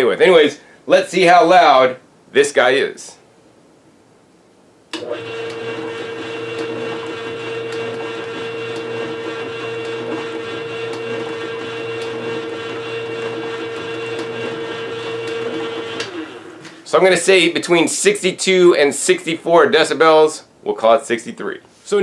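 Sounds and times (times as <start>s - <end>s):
juicer motor humming: 5.0s - 16.7s.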